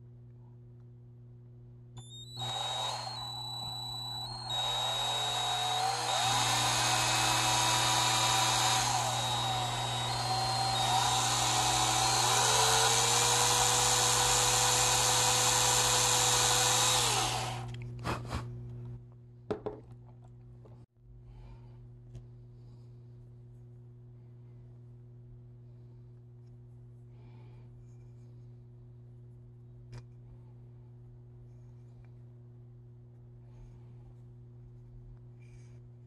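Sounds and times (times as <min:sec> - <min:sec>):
cordless drill boring into wood: 0:02.0 - 0:17.7.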